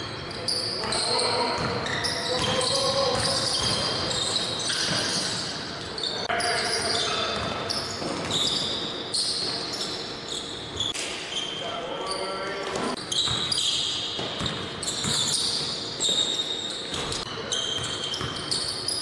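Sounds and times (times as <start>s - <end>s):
sneakers squeaking: 0.0s - 19.0s
players calling out: 0.5s - 7.5s.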